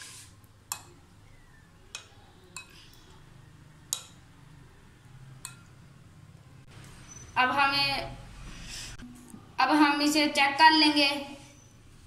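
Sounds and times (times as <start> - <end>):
spoon stirring yogurt: 0.0 - 4.2.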